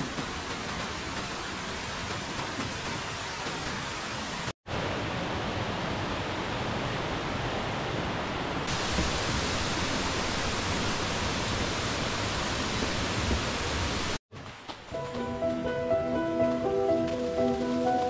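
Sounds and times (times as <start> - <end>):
mountain stream rushing: 1.4 - 14.2.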